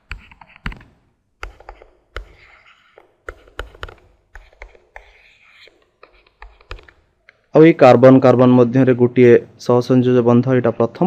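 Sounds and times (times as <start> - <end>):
stylus scratching strokes: 0.0 - 7.1
stylus tapping on tablet: 0.0 - 7.5.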